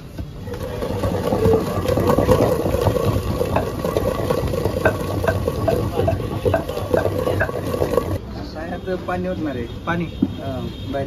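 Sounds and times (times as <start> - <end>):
pestle knocking in stone mortar: 0.5 - 8.2.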